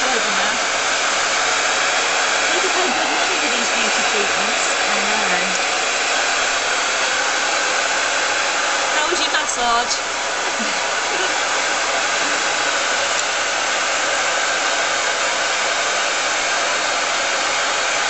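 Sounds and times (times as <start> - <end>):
hair dryer blowing air: 0.0 - 18.0.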